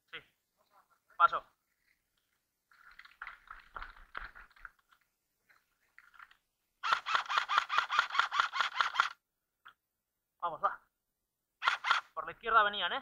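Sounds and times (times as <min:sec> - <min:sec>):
airsoft rifle firing: 0:06.8 - 0:09.2, 0:11.6 - 0:12.1.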